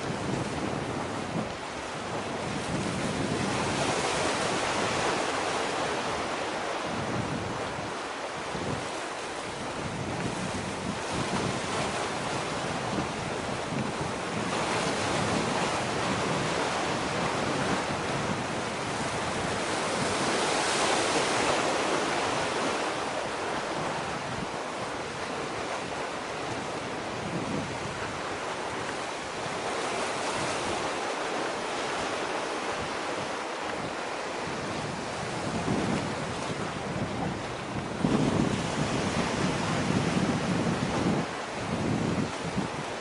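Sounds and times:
waves washing ashore: 0:00.0 - 0:43.0
wind on microphone: 0:00.0 - 0:43.0.

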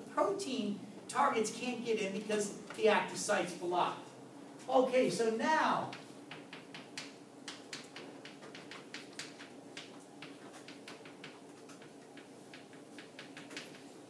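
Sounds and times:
faint steady hum: 0:00.0 - 0:14.0
chalk tapping on chalkboard: 0:05.9 - 0:13.8.

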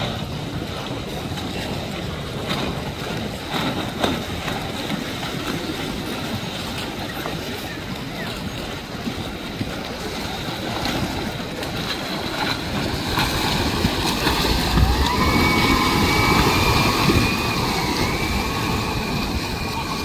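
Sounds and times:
water rushing and sloshing: 0:00.0 - 0:20.0.

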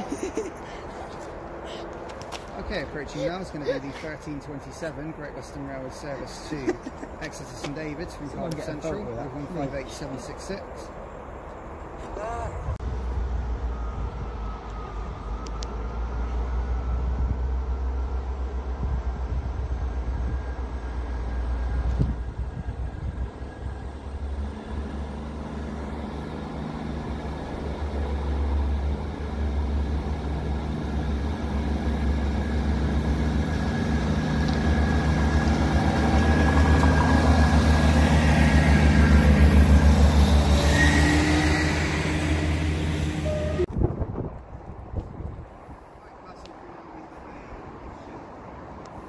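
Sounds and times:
diesel train engines droning: 0:00.0 - 0:49.0
high-pitched train tones: 0:19.8 - 0:43.7.

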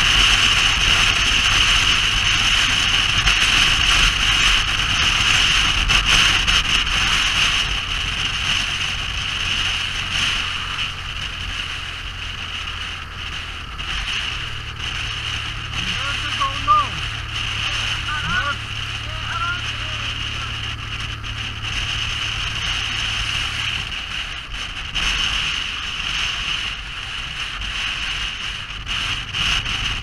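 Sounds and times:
vehicle engine running: 0:00.0 - 0:30.0.

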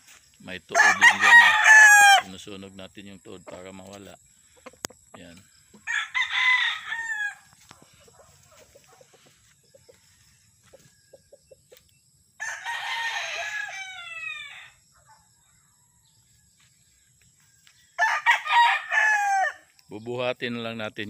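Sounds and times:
rooster crowing: 0:00.7 - 0:02.4, 0:05.8 - 0:07.6, 0:12.4 - 0:14.8, 0:17.9 - 0:19.7.

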